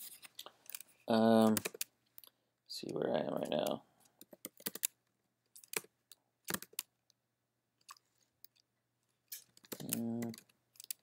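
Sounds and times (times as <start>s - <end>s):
keyboard keystrokes: 3.6s - 5.0s, 6.5s - 6.9s.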